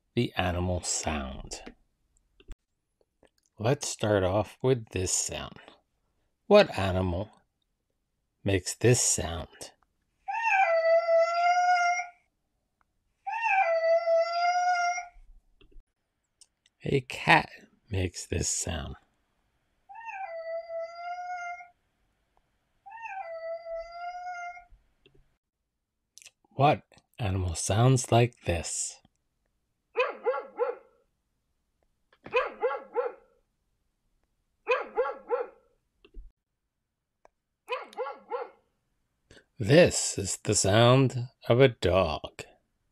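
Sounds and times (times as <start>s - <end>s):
cat meowing: 10.3s - 12.1s, 13.3s - 15.2s, 19.9s - 21.7s, 22.9s - 24.7s
dog barking: 30.0s - 30.9s, 32.3s - 33.3s, 34.7s - 35.6s, 37.7s - 38.6s.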